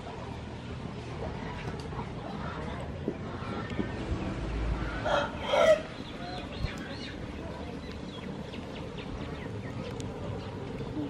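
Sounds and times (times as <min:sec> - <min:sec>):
outdoor background noise: 0:00.0 - 0:11.0
chicken calling: 0:05.0 - 0:06.4.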